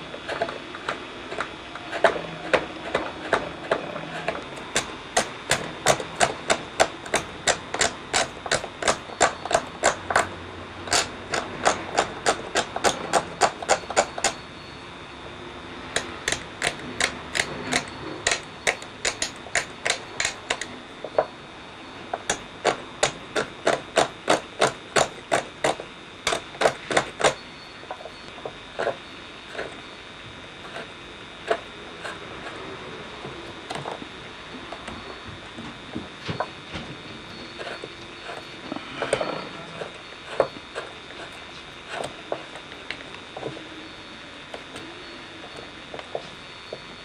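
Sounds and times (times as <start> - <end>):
chisel clicking into wood: 4.2 - 10.3, 10.9 - 14.4, 16.0 - 21.3, 22.2 - 27.4.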